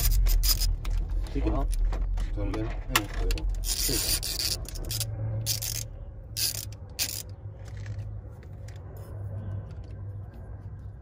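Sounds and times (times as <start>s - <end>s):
ratchet wrench clicking: 0.0s - 0.8s, 3.6s - 8.0s.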